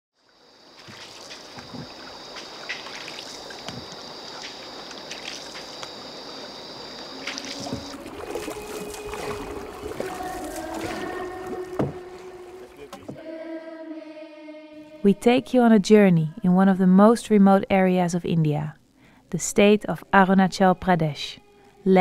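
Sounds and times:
water lapping against boat: 0:00.6 - 0:13.2
steady lower tones: 0:06.8 - 0:18.4
pole knocking on hull: 0:07.6 - 0:13.2.

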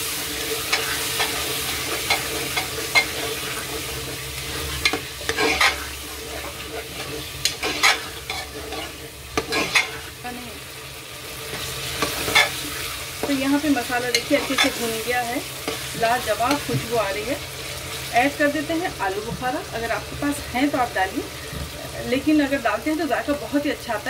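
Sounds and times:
masala sizzling in hot oil: 0:00.0 - 0:24.0
spatula scraping against pot: 0:00.2 - 0:10.2, 0:11.4 - 0:16.7.

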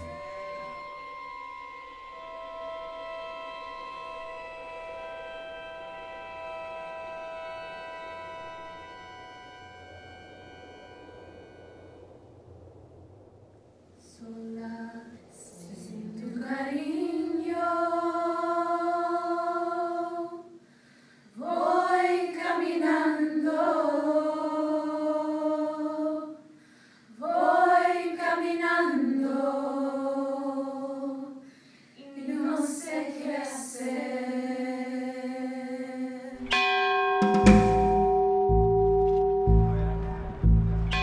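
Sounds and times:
women singing a cappella: 0:14.0 - 0:20.6, 0:21.3 - 0:36.5
large bell ringing: 0:36.4 - 0:41.0.

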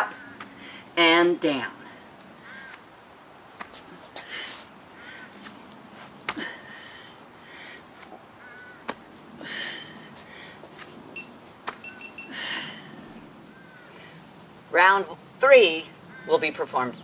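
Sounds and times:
person breathing hard: 0:00.5 - 0:01.0, 0:06.3 - 0:07.9, 0:09.4 - 0:10.7, 0:12.3 - 0:13.0
faint high chirps: 0:11.2 - 0:12.4.

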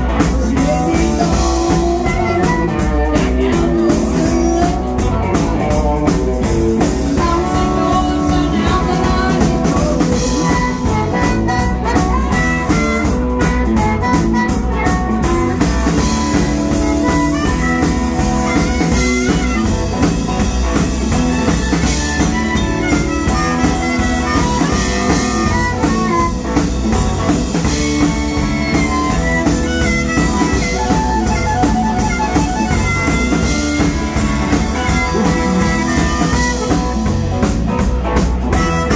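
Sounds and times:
drum kit: 0:00.0 - 0:38.9
electric guitars: 0:00.0 - 0:38.9
harmonica: 0:00.0 - 0:38.9.

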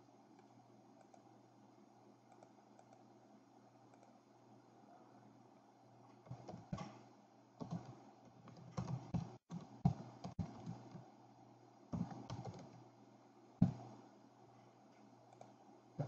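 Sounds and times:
faint low hum: 0:00.0 - 0:16.0
keyboard typing: 0:07.6 - 0:11.1, 0:12.0 - 0:12.8.

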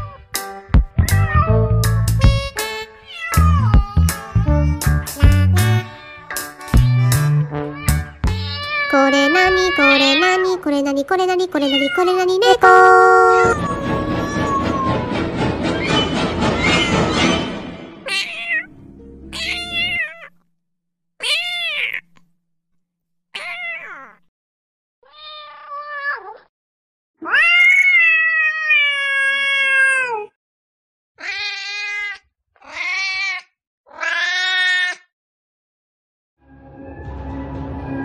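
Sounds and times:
cat meowing: 0:03.0 - 0:04.5, 0:05.8 - 0:10.4, 0:11.6 - 0:15.1, 0:18.0 - 0:18.7, 0:19.3 - 0:20.4, 0:21.2 - 0:22.1, 0:23.4 - 0:24.3, 0:25.0 - 0:26.5, 0:27.2 - 0:30.4, 0:31.2 - 0:35.1.

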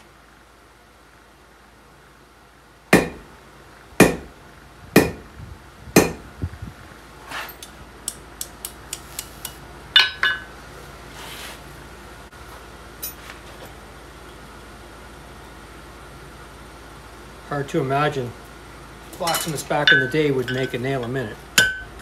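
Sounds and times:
hammer blows on anvil: 0:03.0 - 0:03.3, 0:04.0 - 0:04.3, 0:05.0 - 0:05.3, 0:06.0 - 0:06.3.

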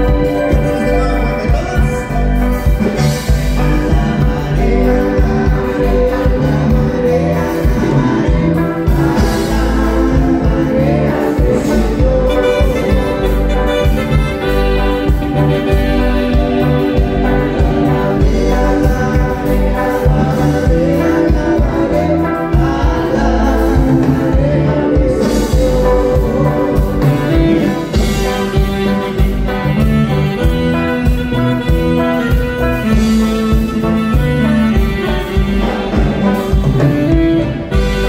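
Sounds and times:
bass drum beat: 0:00.0 - 0:38.0
live band music: 0:00.0 - 0:38.0
person singing: 0:00.0 - 0:38.0.

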